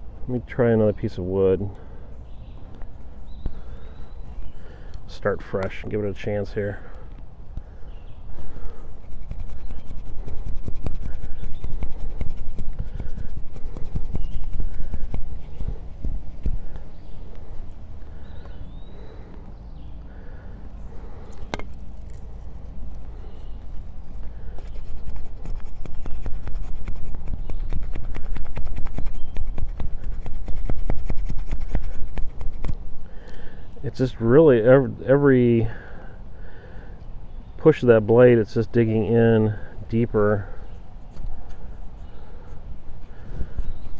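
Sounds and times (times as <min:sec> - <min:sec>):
knife scraping wood: 0:08.9 - 0:16.8, 0:21.3 - 0:22.8, 0:24.3 - 0:32.8.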